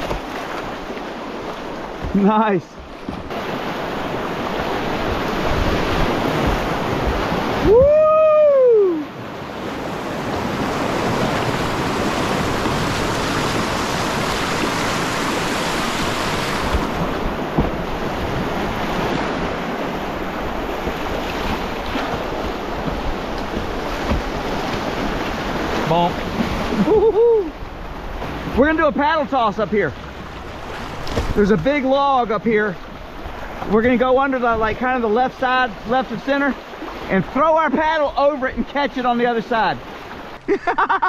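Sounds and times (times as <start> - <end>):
rushing whitewater: 0.0 - 40.8
person whooping: 7.6 - 9.1, 26.8 - 27.6.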